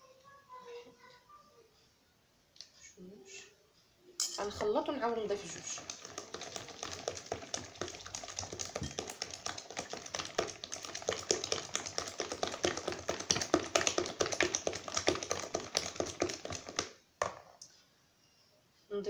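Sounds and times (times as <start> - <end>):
whisk clicking against plastic bowl: 4.6 - 17.0.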